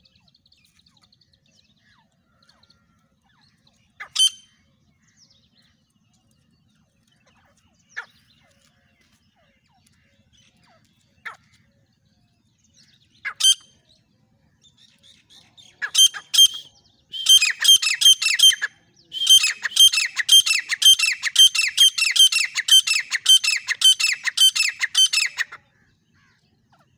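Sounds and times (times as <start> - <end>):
bird harsh repeated calls: 3.9 - 4.7, 13.2 - 13.8, 15.8 - 26.9.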